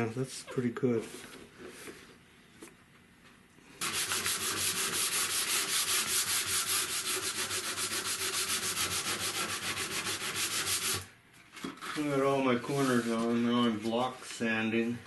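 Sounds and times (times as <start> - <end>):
sanding block on wood: 3.8 - 11.0.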